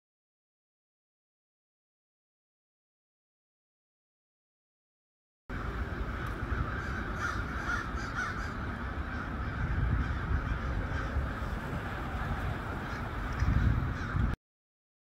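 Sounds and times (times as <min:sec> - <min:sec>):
crows cawing: 0:05.5 - 0:14.4
steady low rumble: 0:05.5 - 0:14.4.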